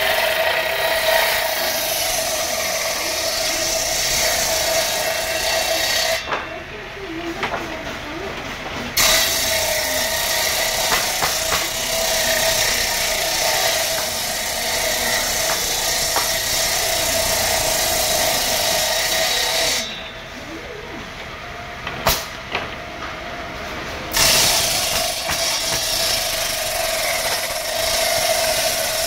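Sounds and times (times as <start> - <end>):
circular saw cutting wood: 0.0 - 6.5, 8.9 - 20.6, 24.1 - 29.0.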